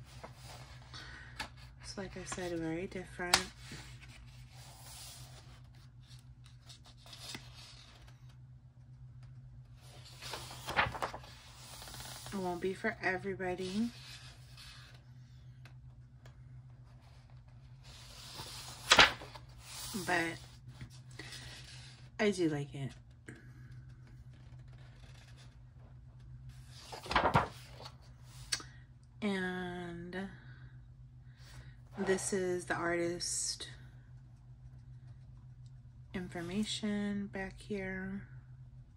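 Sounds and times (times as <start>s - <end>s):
low steady hum: 0.0s - 38.9s
paper pages rustling: 3.3s - 8.4s, 9.3s - 12.7s, 17.0s - 22.0s, 24.3s - 25.6s, 26.5s - 28.4s
pages riffling: 9.8s - 12.4s, 18.0s - 20.0s, 26.8s - 27.9s.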